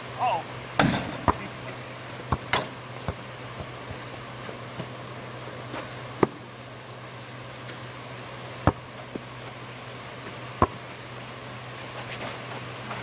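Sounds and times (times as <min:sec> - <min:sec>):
steady low hum: 0:00.0 - 0:13.0
basketball bouncing knocks: 0:00.8 - 0:01.5, 0:02.3 - 0:04.0.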